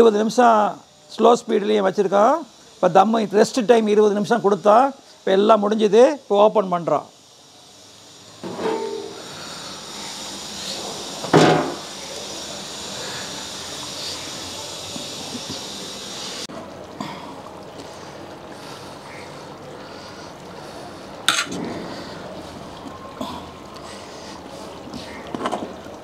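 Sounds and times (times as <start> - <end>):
steady background hiss: 0.0 - 26.0
metal scrape: 8.4 - 9.2.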